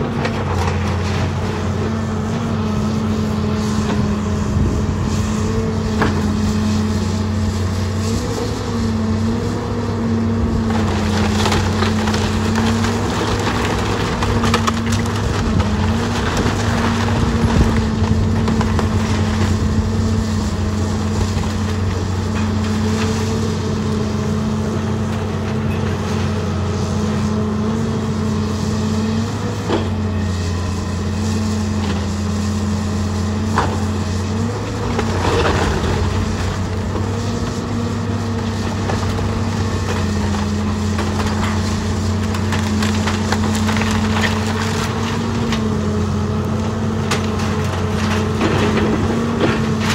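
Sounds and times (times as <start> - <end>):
excavator diesel engine running: 0.0 - 49.9
timbers crunching and splintering: 0.0 - 49.9
wood sharp cracks: 10.7 - 19.6, 38.6 - 45.7.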